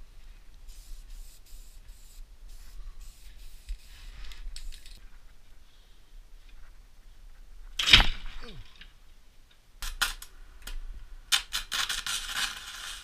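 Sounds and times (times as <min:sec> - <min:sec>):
arc welding crackle: 0:09.8 - 0:13.0.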